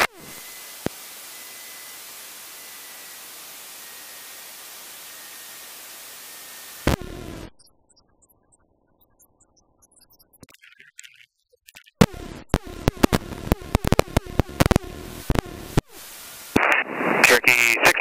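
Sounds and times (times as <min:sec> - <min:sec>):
radio static hiss: 0:00.0 - 0:07.5, 0:12.0 - 0:18.0.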